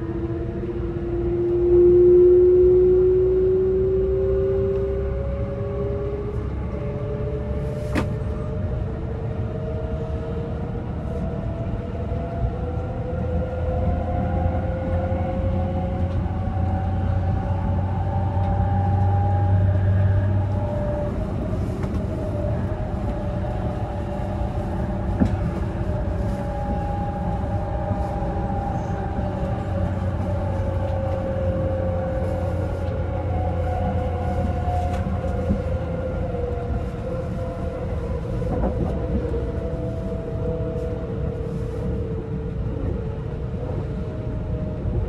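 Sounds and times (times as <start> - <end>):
train car low rumble: 0.0 - 45.0.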